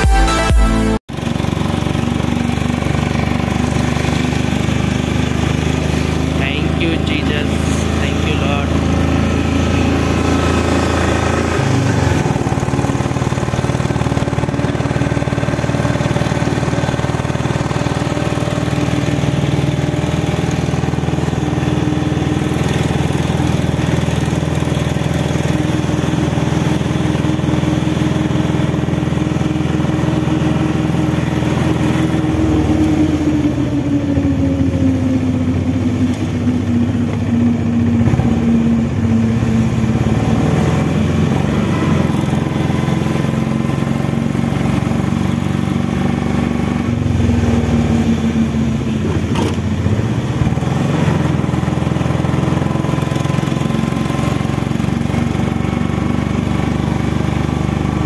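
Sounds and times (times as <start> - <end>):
motorcycle engine running: 1.0 - 58.0.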